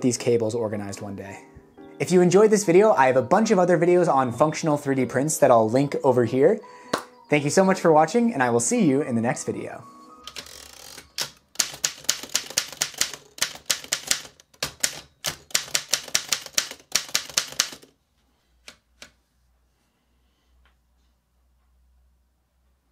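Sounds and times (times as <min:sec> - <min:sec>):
manual typewriter typing: 0:10.2 - 0:17.9.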